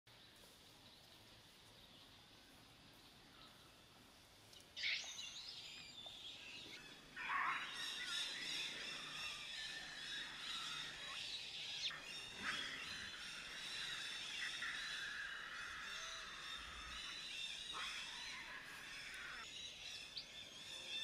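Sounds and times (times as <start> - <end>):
baby monkey screaming: 11.9 - 19.4.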